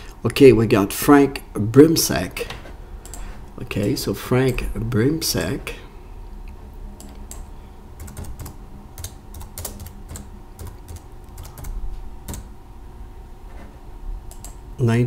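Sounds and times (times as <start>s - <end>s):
faint steady hum: 0.0s - 15.0s
keyboard typing: 7.0s - 12.5s, 14.3s - 14.6s.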